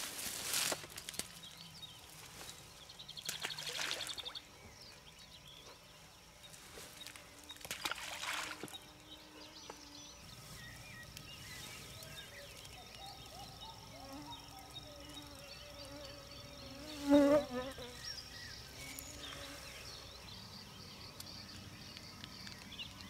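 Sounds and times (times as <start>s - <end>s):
birds chirping: 1.0s - 23.0s
soft splashes in water: 3.2s - 4.4s, 7.6s - 8.8s.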